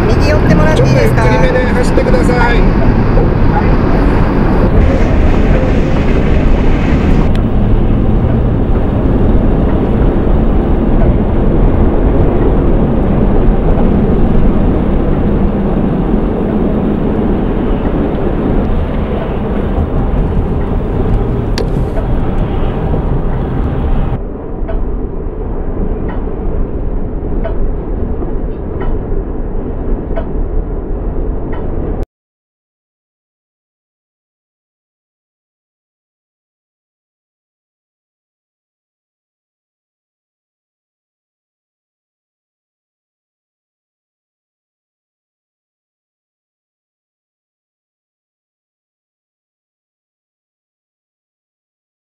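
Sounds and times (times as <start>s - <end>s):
car road and wind rumble: 0.0s - 32.0s.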